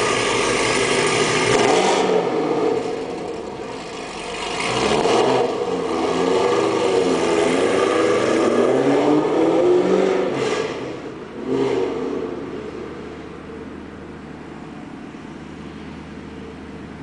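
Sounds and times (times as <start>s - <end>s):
car engine accelerating hard: 0.0s - 12.8s.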